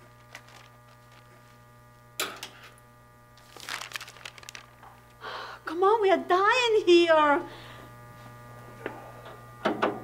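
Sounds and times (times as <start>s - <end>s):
electrical mains hum: 0.0s - 10.0s
paper rustling: 0.2s - 1.5s, 3.4s - 5.0s.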